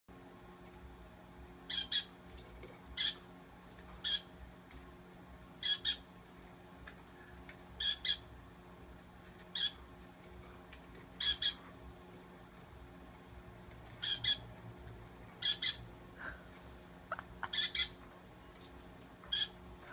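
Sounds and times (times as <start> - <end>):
parrot squawking: 1.7 - 2.2, 3.0 - 3.2, 4.0 - 4.3, 5.6 - 6.1, 7.8 - 8.2, 9.6 - 9.8, 11.2 - 11.6, 14.0 - 14.5, 15.4 - 15.8, 17.1 - 18.0, 19.3 - 19.6.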